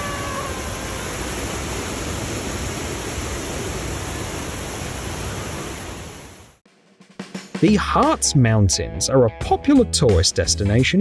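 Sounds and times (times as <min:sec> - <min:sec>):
floodwater rushing against train: 0:00.0 - 0:06.2.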